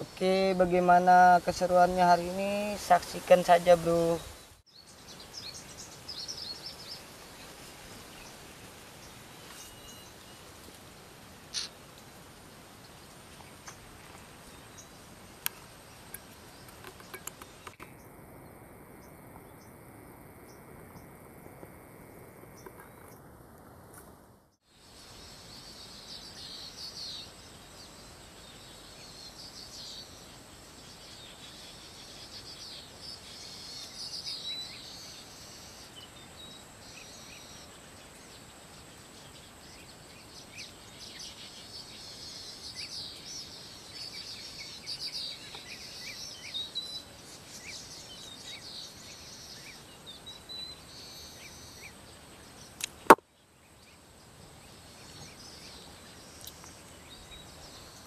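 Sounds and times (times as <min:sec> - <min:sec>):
insect calls: 0:00.0 - 0:24.1, 0:24.7 - 0:58.0
birds chirping and calling: 0:11.5 - 0:11.8.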